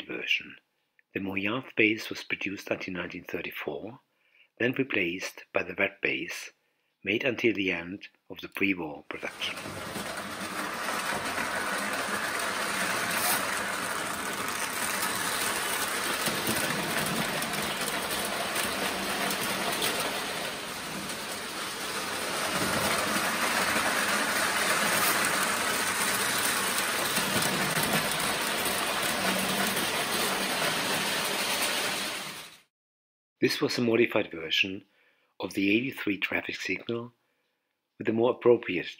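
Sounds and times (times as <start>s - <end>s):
toy train rolling on track: 9.2s - 32.7s.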